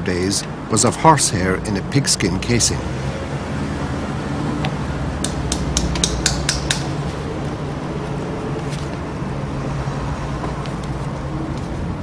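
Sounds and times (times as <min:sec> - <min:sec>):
awl clicking through leather: 0:05.2 - 0:09.1.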